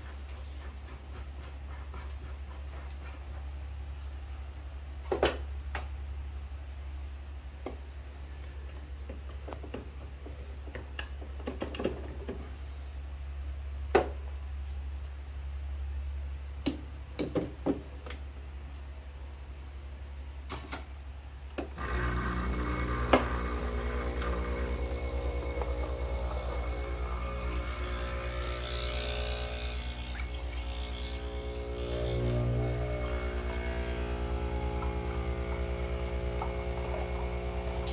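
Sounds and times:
espresso pump buzzing: 21.8 - 37.9.

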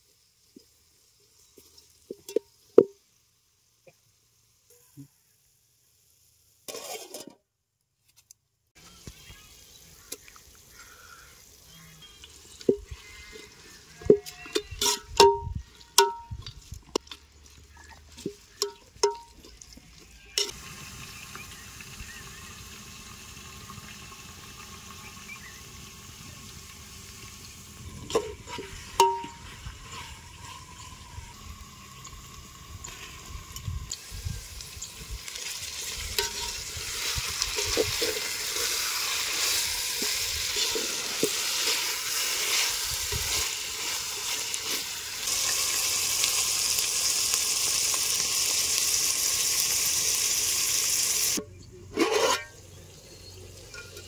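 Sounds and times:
food sizzling in a pan: 0.0 - 7.4, 8.8 - 51.4
metal utensil clinking on pan: 14.1 - 16.4, 18.6 - 19.4, 28.1 - 29.4, 36.2 - 36.7, 53.6 - 54.0.

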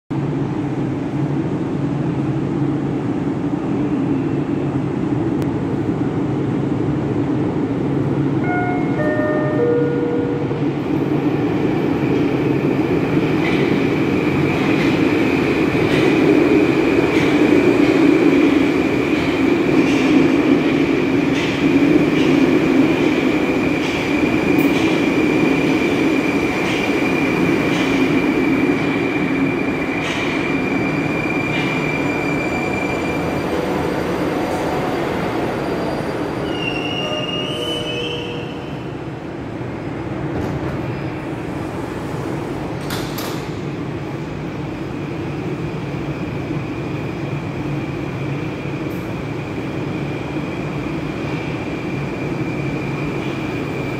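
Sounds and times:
train rumble with wheel clicks: 0.2 - 32.2, 36.6 - 53.9
high train whine: 0.2 - 53.9
short high tones: 8.4 - 10.6.

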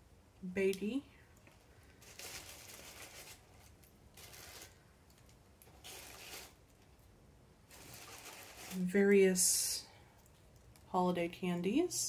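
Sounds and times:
plastic packaging crinkling: 1.4 - 9.0.

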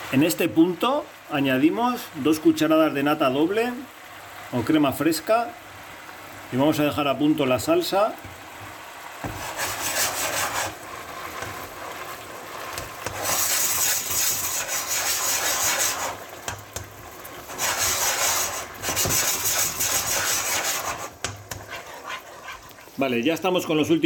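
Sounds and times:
sauce bubbling and sizzling: 0.0 - 24.0
spatula scraping pan: 9.2 - 23.9.

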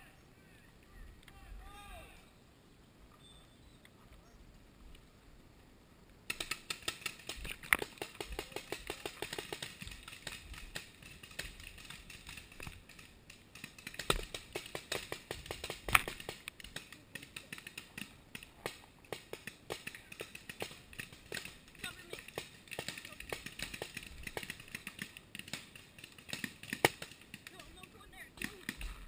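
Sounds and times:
paintball markers popping: 6.3 - 29.0.

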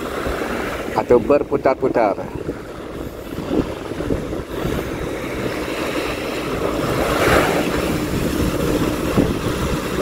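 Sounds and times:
speedboat engine running: 0.0 - 10.0
wind on microphone: 0.0 - 10.0
rushing swell: 2.8 - 10.0.

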